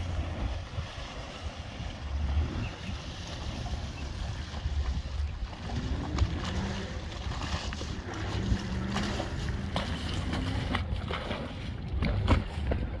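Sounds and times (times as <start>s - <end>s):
boat engine idling: 0.0s - 13.0s
small waves slapping: 0.0s - 13.0s
wind buffeting microphone: 0.0s - 13.0s.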